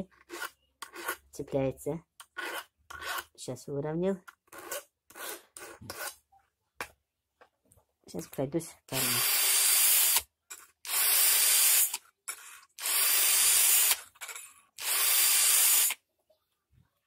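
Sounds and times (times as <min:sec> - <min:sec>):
drill grinding chainsaw chain: 0:08.9 - 0:16.0.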